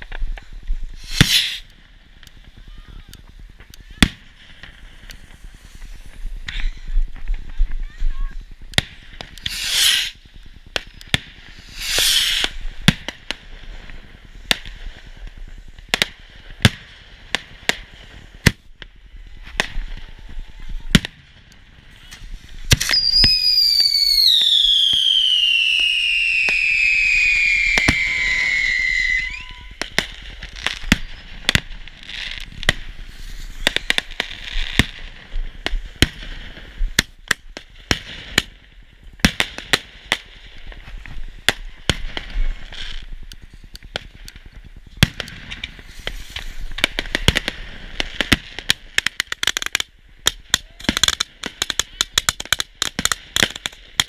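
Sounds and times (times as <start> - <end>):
firework bangs and crackling pops: 0.0 - 54.0
whistling firework falling in pitch: 1.0 - 1.7, 8.9 - 10.2, 10.8 - 13.1, 22.0 - 31.8.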